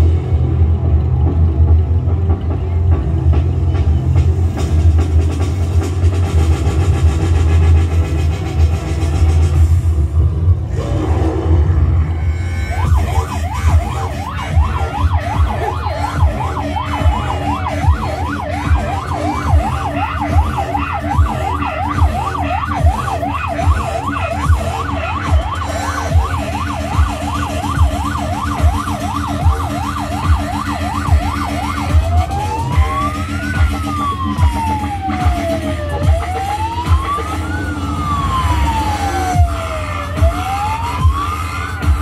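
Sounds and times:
electronic siren yelping: 11.9s - 42.0s.

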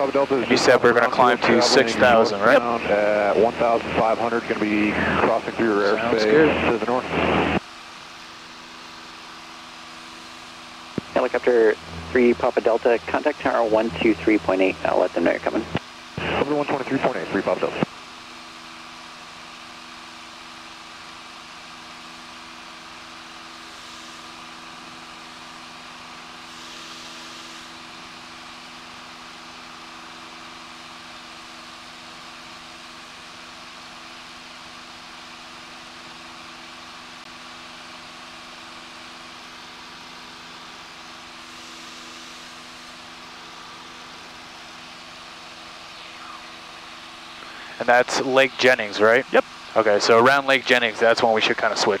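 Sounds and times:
airplane engine droning: 0.0s - 19.5s, 36.6s - 52.0s
hiss: 26.4s - 27.8s.

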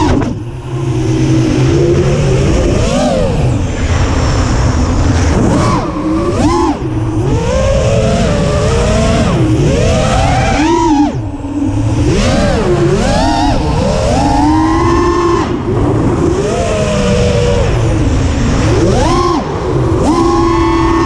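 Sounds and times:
low rush of air: 0.0s - 10.2s
drone motors and propellers whining: 0.0s - 21.0s.

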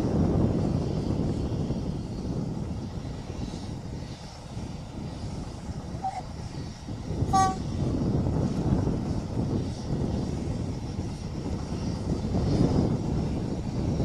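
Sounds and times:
distant diesel locomotive rumble: 0.0s - 14.0s
train horn toot: 6.0s - 6.2s, 7.3s - 7.7s.

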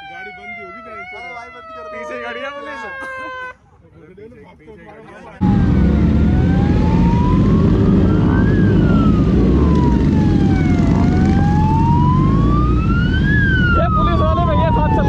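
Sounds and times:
police siren wailing: 0.0s - 3.6s, 5.4s - 15.0s
low rumble: 5.4s - 11.2s.

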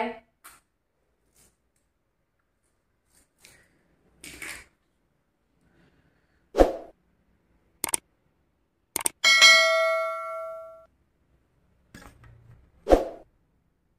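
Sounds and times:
mouse clicks: 7.8s - 8.0s, 9.0s - 9.2s
bell ding: 9.2s - 10.9s.

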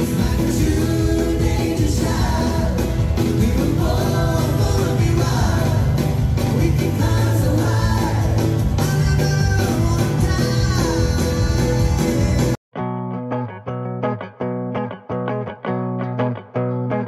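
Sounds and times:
band playing a song with vocals: 0.0s - 12.6s.

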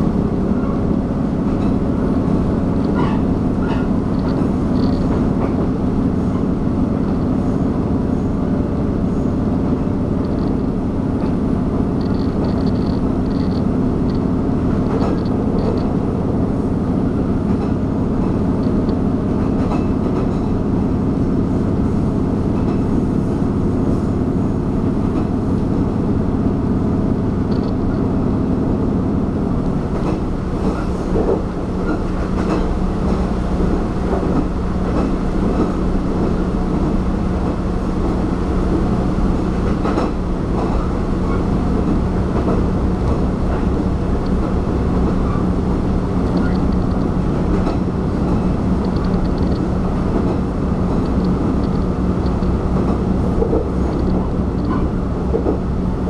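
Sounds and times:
diesel train rumbling: 0.0s - 56.0s
wheels clicking over track: 10.1s - 16.0s.

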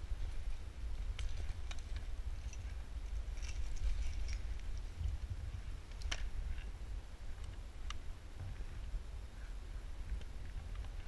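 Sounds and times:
low rumble and handling noise: 0.0s - 11.0s.

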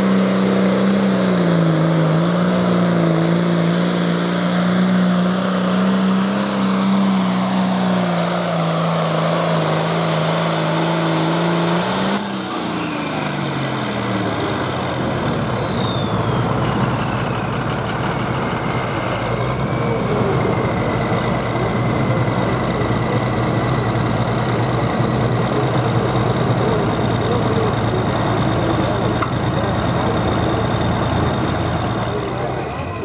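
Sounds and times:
steady engine whine: 0.0s - 33.0s
tractor diesel engine idling: 12.2s - 33.0s.

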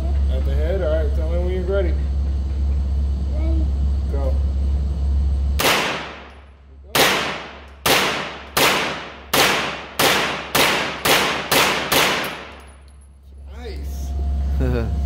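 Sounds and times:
gunshots echoing indoors: 5.6s - 12.7s.

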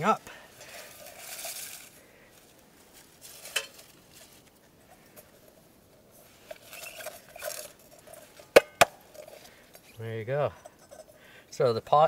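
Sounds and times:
paper crinkling and rustling: 0.8s - 4.6s.

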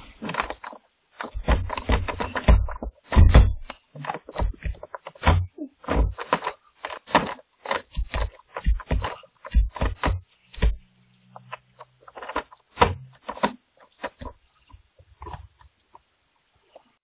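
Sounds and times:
close-mic thumps: 0.0s - 11.6s, 12.2s - 14.4s.

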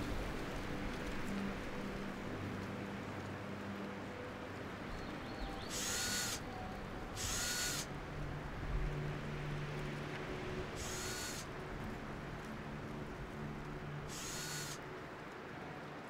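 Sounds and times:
cordless drill driving screws: 5.7s - 6.4s, 7.2s - 7.8s.

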